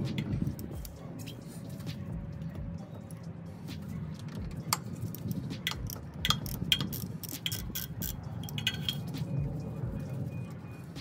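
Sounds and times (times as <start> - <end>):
ratchet wrench clicking: 4.1 - 9.2
light metallic clinks: 4.3 - 9.2.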